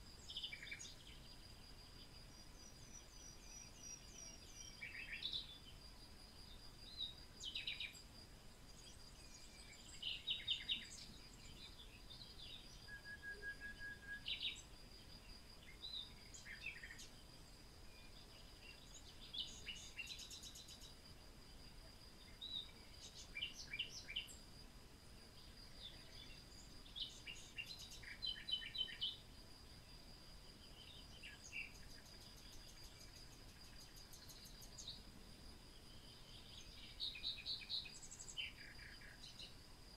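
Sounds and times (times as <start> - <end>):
high insect drone: 14.2 - 39.9.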